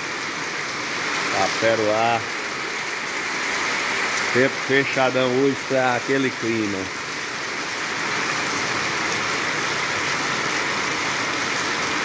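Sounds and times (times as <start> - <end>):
heavy rain pouring: 0.0 - 12.0.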